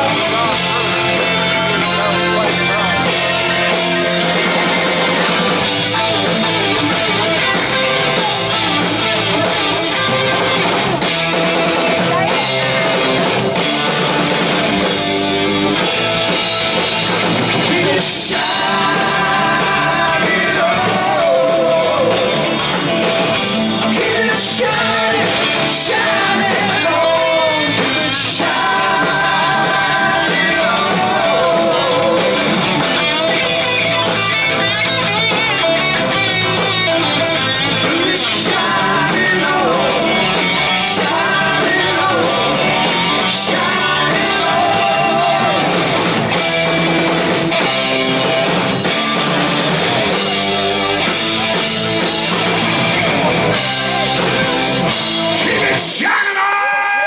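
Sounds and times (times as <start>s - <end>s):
electric guitar: 0.0s - 56.1s
drums: 0.0s - 57.0s
person singing: 17.5s - 34.2s, 37.3s - 46.2s.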